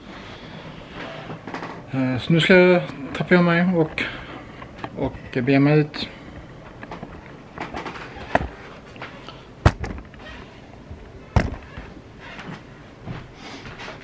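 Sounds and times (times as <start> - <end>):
camera handling knocks: 9.6 - 10.1.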